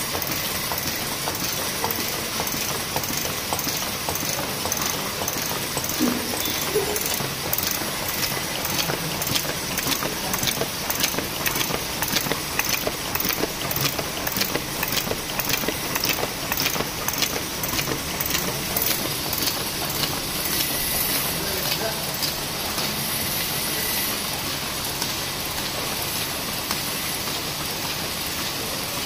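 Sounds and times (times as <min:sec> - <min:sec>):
machine clatter: 0:00.0 - 0:29.0
sharp regular clicks: 0:00.1 - 0:06.0, 0:07.0 - 0:20.7.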